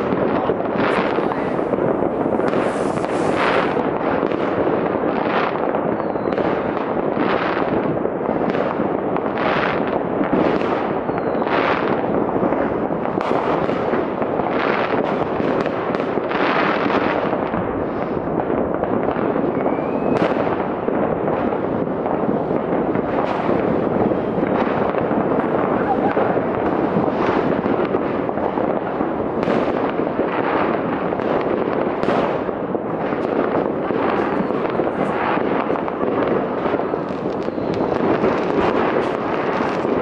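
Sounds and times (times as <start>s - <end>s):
whistling rockets: 0.0s - 4.6s, 5.8s - 6.8s, 10.4s - 12.0s, 19.2s - 28.3s, 33.1s - 40.0s
distant fireworks bangs: 0.0s - 40.0s
firecracker crackle: 0.0s - 40.0s.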